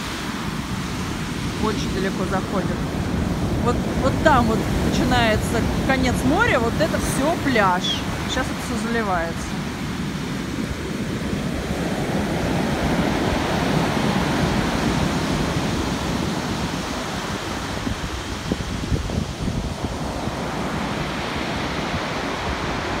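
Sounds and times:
surf breaking on a beach: 0:00.0 - 0:23.0.

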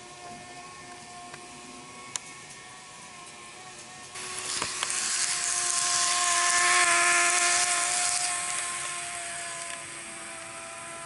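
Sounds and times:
model train motor whining: 0:00.0 - 0:11.0.

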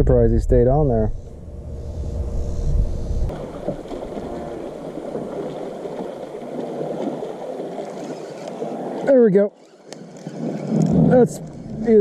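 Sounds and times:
water lapping against boat: 0:03.3 - 0:12.0.

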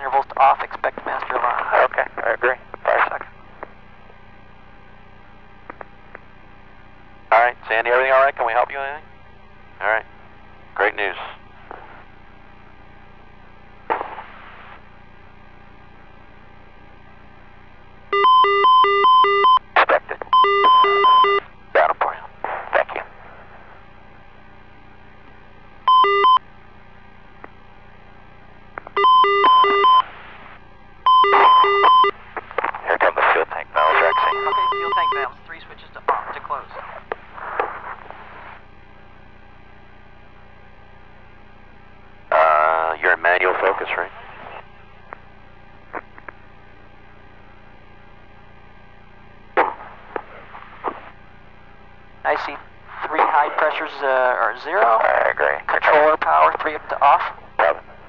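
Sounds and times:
electrical hum and hiss: 0:00.0 - 0:58.0
electronic alarm tone: 0:18.1 - 0:19.6, 0:20.4 - 0:21.5, 0:25.9 - 0:26.4, 0:29.0 - 0:30.1, 0:31.1 - 0:32.2, 0:33.9 - 0:35.3.

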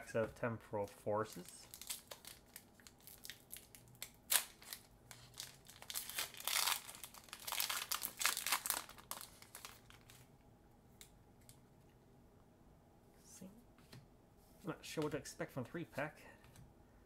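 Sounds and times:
foil wrapper crackling: 0:01.3 - 0:10.3.

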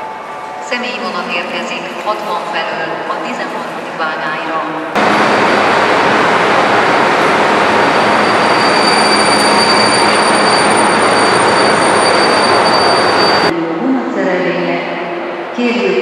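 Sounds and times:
electric locomotive rushing noise: 0:04.8 - 0:13.5
high whine: 0:04.9 - 0:13.6.

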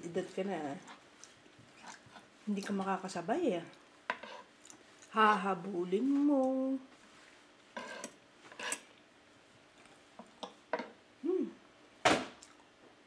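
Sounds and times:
cutlery scraping a wooden plate: 0:04.1 - 0:04.5, 0:07.8 - 0:08.9
hummed mouth sound: 0:11.2 - 0:11.6.

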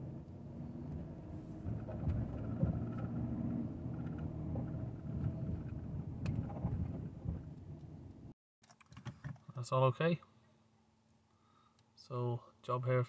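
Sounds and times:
car engine at low revs: 0:00.0 - 0:08.3
road noise: 0:00.0 - 0:08.3.

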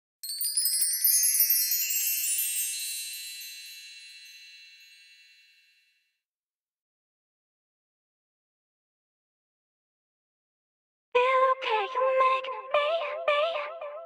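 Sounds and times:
bright tinkling chime: 0:00.2 - 0:06.1.

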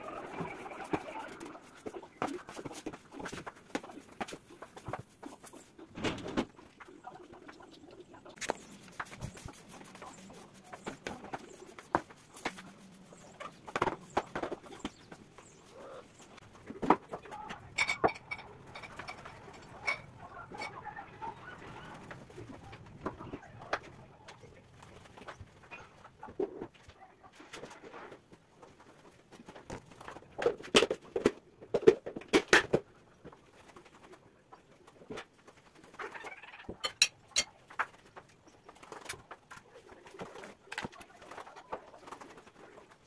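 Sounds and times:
broom sweeping tiled floor: 0:00.0 - 0:07.6, 0:08.2 - 0:17.0
distant bird calling: 0:12.6 - 0:16.5.

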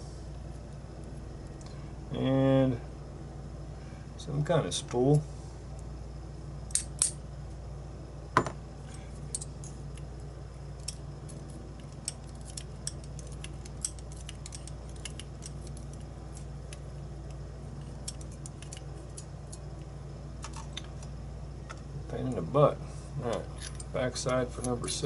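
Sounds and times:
low steady hum: 0:00.0 - 0:25.0
metallic clicks of lock parts: 0:11.8 - 0:16.8.

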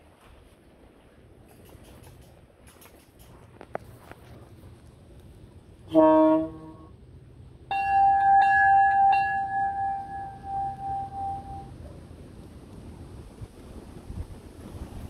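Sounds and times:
locomotive horn toot: 0:05.9 - 0:07.0
locomotive bell ringing: 0:07.6 - 0:11.8.

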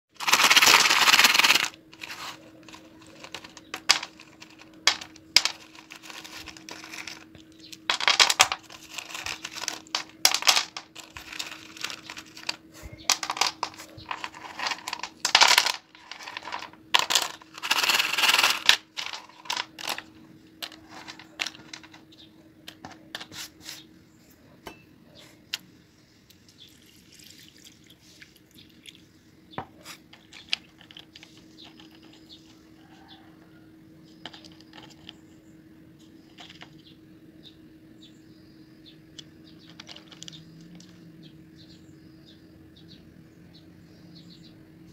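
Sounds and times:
pencils clicking and clattering: 0:00.2 - 0:23.5, 0:30.1 - 0:33.2, 0:34.1 - 0:35.2, 0:36.2 - 0:36.9, 0:39.1 - 0:41.1.

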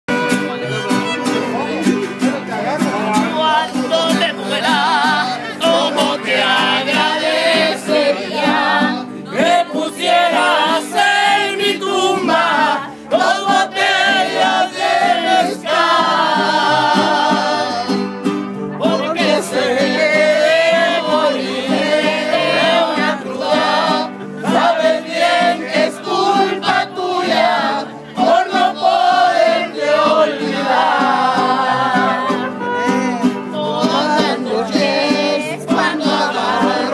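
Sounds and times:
mariachi band playing: 0:00.1 - 0:36.9
person singing: 0:18.8 - 0:36.9.

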